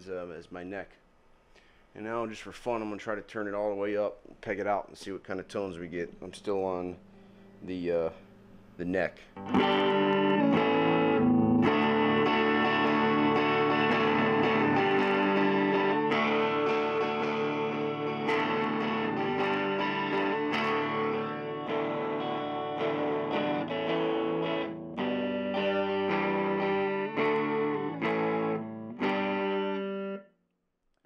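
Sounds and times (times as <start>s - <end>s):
distorted electric guitar chords: 9.4s - 30.2s.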